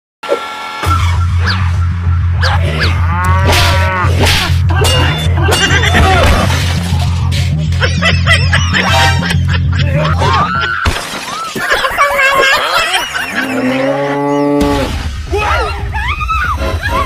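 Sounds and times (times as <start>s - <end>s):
music with heavy bass beat: 0.9s - 10.2s
cow mooing: 2.4s - 4.2s, 13.5s - 14.9s
crash sound effect: 14.6s - 15.8s.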